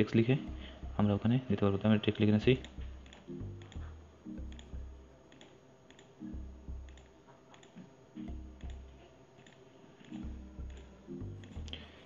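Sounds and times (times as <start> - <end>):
quiet background music: 0.0 - 12.0
on-screen keyboard typing clicks: 2.1 - 6.2, 6.8 - 11.8.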